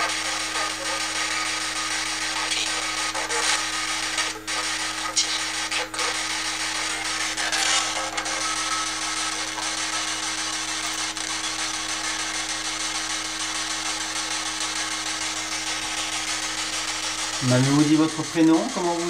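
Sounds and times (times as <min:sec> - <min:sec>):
radio blips: 0:00.0 - 0:19.0
radio static hiss: 0:00.0 - 0:19.0
steady low hum: 0:00.0 - 0:19.0.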